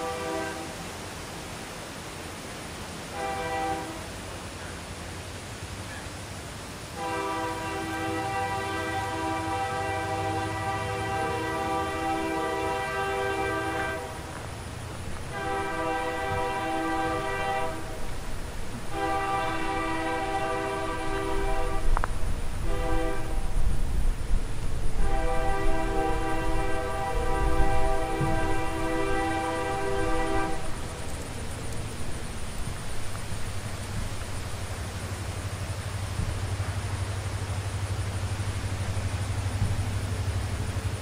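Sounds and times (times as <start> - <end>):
locomotive air horn blasts: 0.0 - 0.8, 3.1 - 4.2, 6.9 - 14.4, 15.2 - 18.1, 18.7 - 22.0, 22.6 - 23.6, 24.9 - 30.9
locomotive rumble: 3.1 - 41.0.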